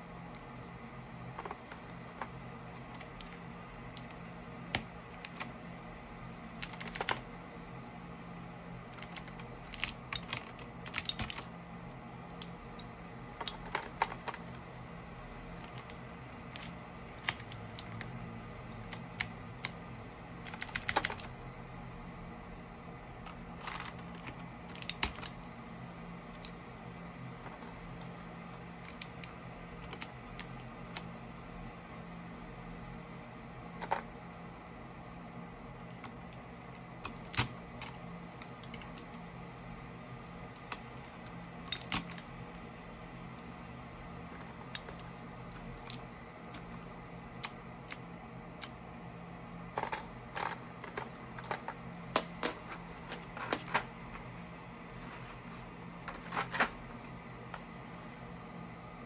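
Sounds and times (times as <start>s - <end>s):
mechanical keyboard key clacks: 6.6s - 7.3s, 9.0s - 11.5s, 20.4s - 21.3s.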